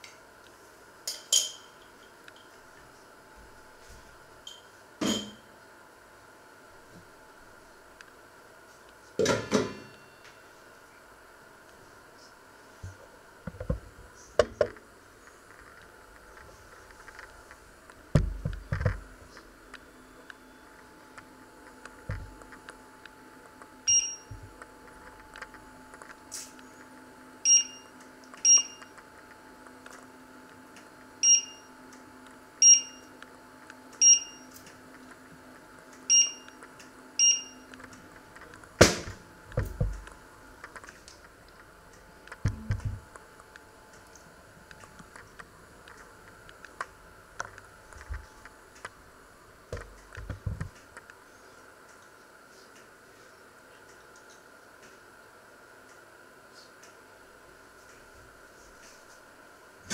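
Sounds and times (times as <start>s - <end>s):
cooktop control beeps: 23.9s - 24.4s, 27.4s - 28.9s, 31.2s - 31.7s, 32.6s - 33.1s, 34.0s - 34.5s, 36.1s - 36.5s, 37.2s - 37.7s.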